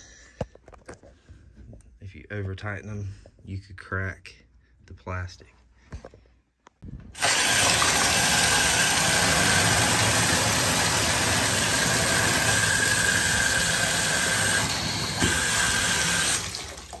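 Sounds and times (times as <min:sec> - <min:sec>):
water running into a tub: 0:07.2 - 0:17.0.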